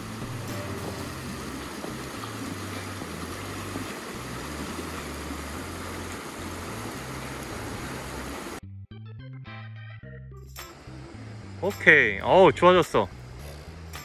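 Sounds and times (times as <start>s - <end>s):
river rushing over rocks: 0.0s - 8.6s
low bass background music: 0.0s - 14.0s.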